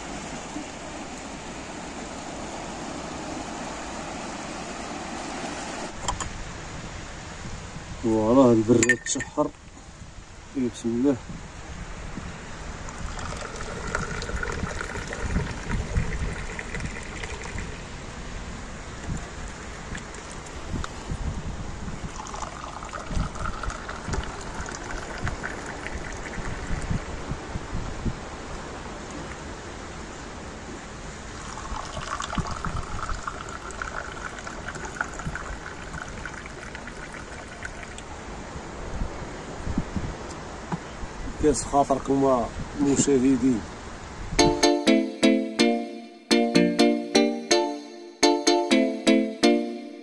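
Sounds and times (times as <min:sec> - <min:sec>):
wind rumble on microphone: 0:00.0 - 0:44.6
tea pouring into glass: 0:12.9 - 0:17.8, 0:22.0 - 0:26.8, 0:31.4 - 0:38.1.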